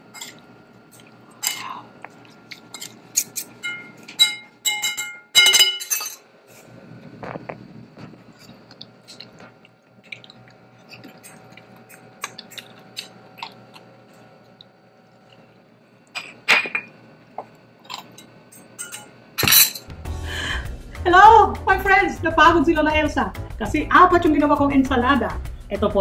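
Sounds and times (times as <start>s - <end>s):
cutlery clinking on ceramic bowl: 2.7s - 6.2s.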